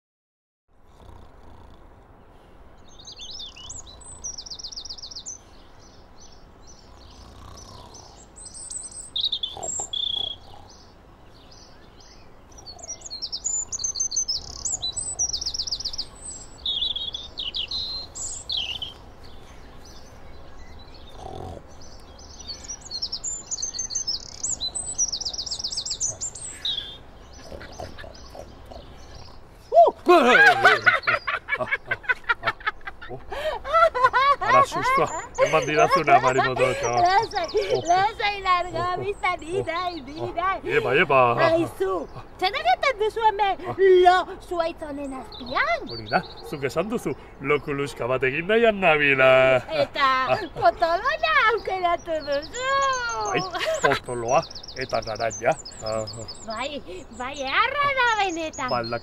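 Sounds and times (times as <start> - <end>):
songbirds singing and trilling: 0.8 - 59.0.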